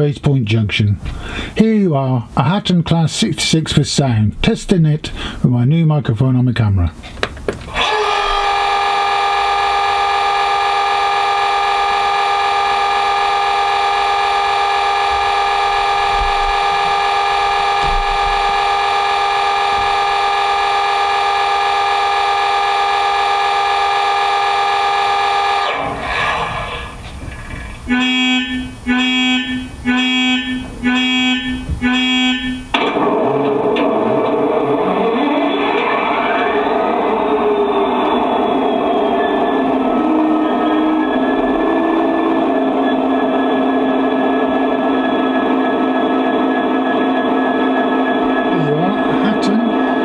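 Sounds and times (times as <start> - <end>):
long diesel horn note: 7.8 - 27.0, 27.8 - 33.2, 34.7 - 45.9
short horn toots: 8.9 - 26.9, 27.8 - 32.8.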